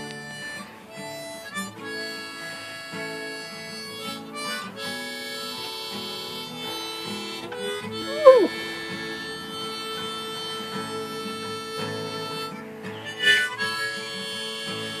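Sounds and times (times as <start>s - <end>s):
acoustic guitar: 0.0s - 15.0s
harmonica playing: 0.0s - 15.0s.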